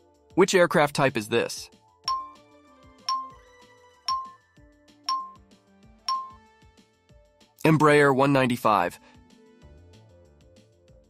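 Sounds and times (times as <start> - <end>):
soft background music: 0.0 - 11.0
bright timer ping: 2.1 - 2.4, 3.1 - 3.4, 4.1 - 4.4, 5.1 - 5.4, 6.1 - 6.4.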